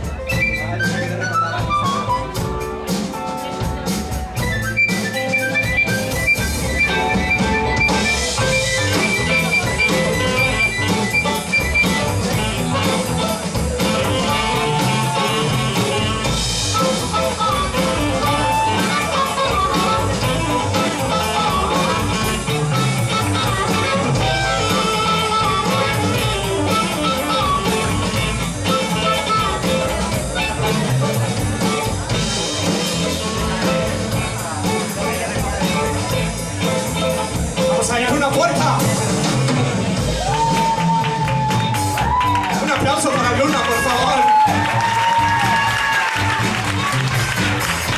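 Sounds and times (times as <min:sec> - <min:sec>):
drum kit: 0:00.0 - 0:47.9
electric guitars: 0:01.5 - 0:47.9
harmonica lead line: 0:04.4 - 0:31.4.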